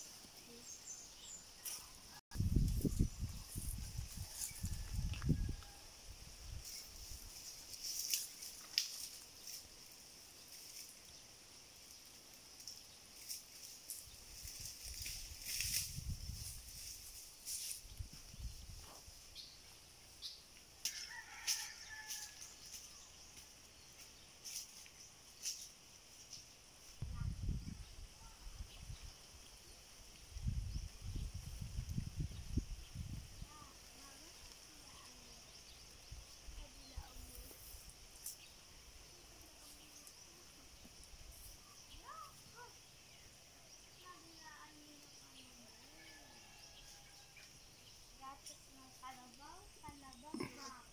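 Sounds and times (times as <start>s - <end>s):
faint high insect hum: 0.0s - 50.9s
rooster crowing: 4.2s - 6.0s, 20.9s - 22.6s.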